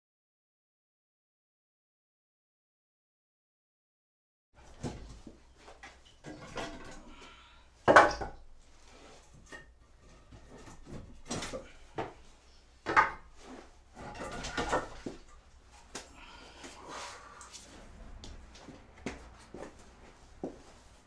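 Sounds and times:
logs scraping: 0:13.4 - 0:18.0
logs knocking together: 0:14.0 - 0:16.1.

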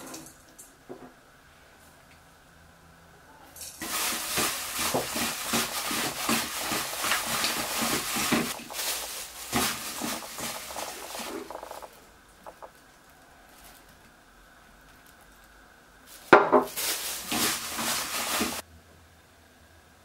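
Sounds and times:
fish strips rustling against bowl: 0:03.7 - 0:14.2, 0:16.1 - 0:18.6
plastic glove crinkling: 0:03.7 - 0:18.6.

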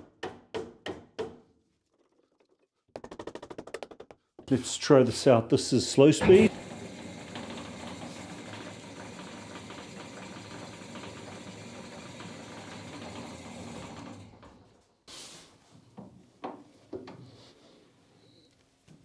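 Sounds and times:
bandsaw running: 0:06.2 - 0:14.7.

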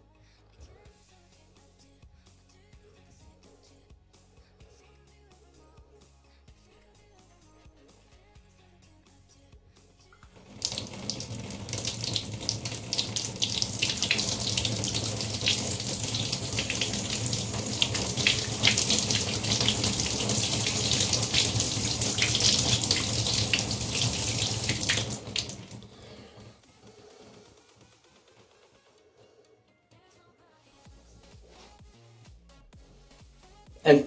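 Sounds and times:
water splashing from bathtub tap: 0:10.3 - 0:25.9.

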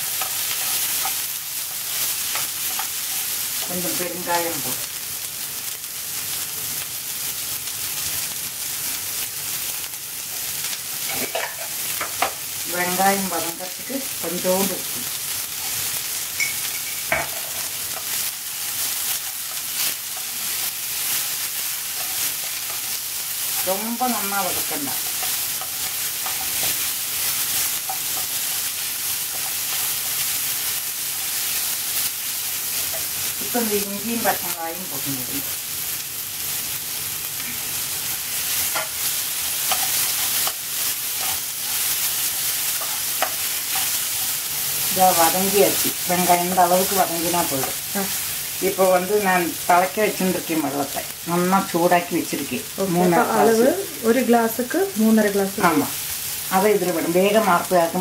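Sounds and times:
onions sizzling in a frying pan: 0:00.0 - 0:58.0.

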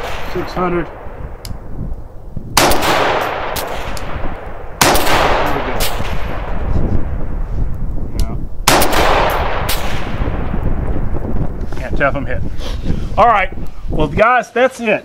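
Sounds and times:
rifle shots echoing: 0:00.0 - 0:01.8, 0:02.6 - 0:07.4, 0:08.6 - 0:11.1.

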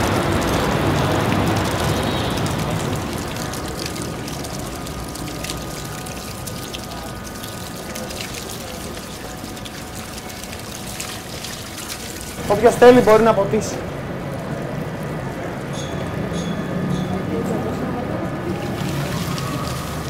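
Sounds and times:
water splattering from garden hose: 0:00.0 - 0:13.6, 0:18.5 - 0:20.0
low city traffic rumble: 0:00.0 - 0:20.0.

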